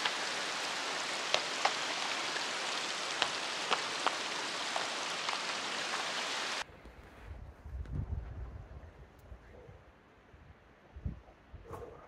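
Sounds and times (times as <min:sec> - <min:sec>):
rushing water: 0:00.0 - 0:06.6
water splashing clicks: 0:00.0 - 0:06.6.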